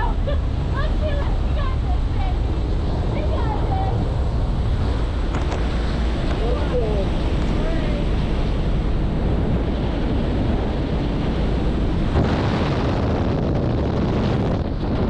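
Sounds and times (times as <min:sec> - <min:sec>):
aircraft engine: 0:00.0 - 0:15.0
rushing slipstream wind: 0:00.0 - 0:15.0
wind buffeting microphone: 0:00.0 - 0:15.0.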